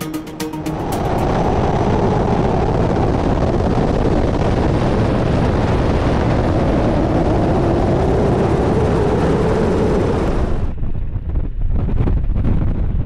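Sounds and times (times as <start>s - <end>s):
helicopter rotor and turbine engines: 0.6s - 13.0s.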